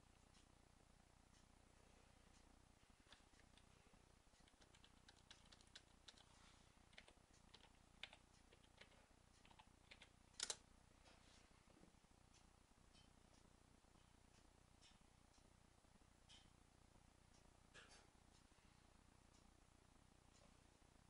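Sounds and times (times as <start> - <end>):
keyboard keystrokes: 4.4 - 6.3, 6.9 - 10.6.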